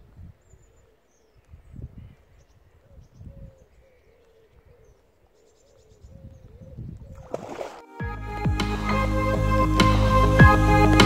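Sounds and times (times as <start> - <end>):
faint bird chirps: 0.0 - 7.3
wind bumps on microphone: 1.5 - 2.2, 2.8 - 3.7, 6.0 - 7.7
water splash: 7.2 - 7.9.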